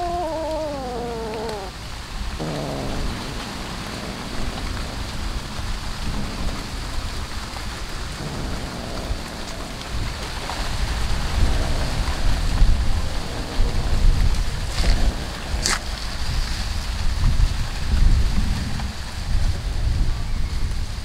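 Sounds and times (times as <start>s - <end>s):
wind buffeting microphone: 2.4s - 21.0s.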